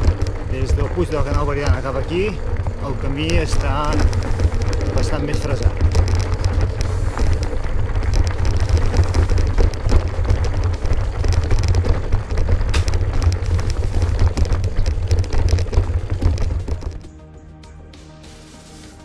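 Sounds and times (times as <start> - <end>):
wind buffeting microphone: 0.0 - 17.0
bike rattling over stony ground: 0.0 - 17.2.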